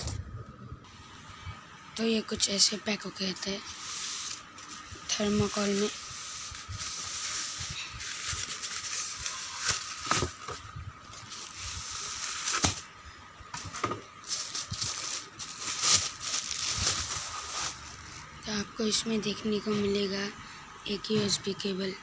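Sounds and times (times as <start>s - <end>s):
plastic packaging crinkling: 3.7s - 12.9s, 14.2s - 18.2s.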